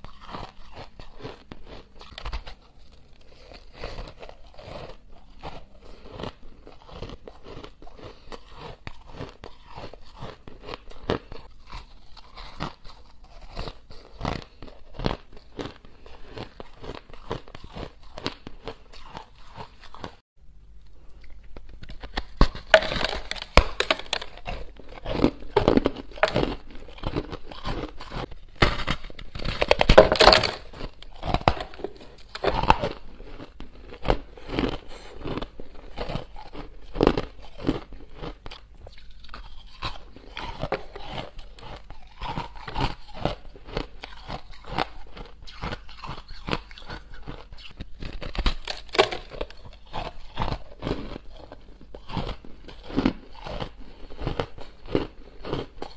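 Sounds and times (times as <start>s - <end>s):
chewing crunchy ice: 0.0s - 20.2s, 21.0s - 55.9s.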